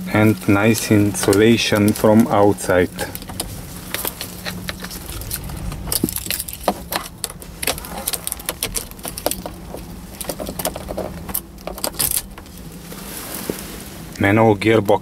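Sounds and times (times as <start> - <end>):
car keys jangling and clicking: 3.1 - 12.5.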